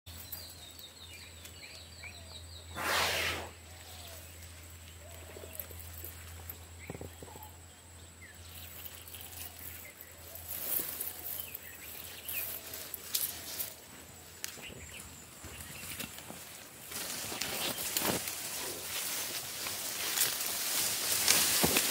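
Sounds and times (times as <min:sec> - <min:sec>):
birds calling: 0:00.1 - 0:21.9
brush and twigs crackling: 0:08.4 - 0:21.9.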